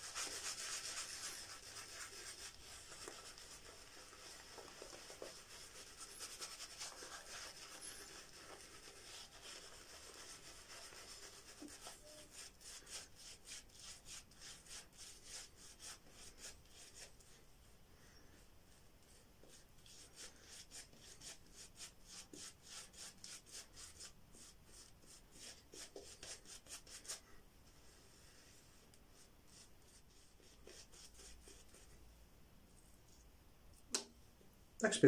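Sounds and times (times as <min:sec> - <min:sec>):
shaving brush lathering: 0:00.0 - 0:17.2.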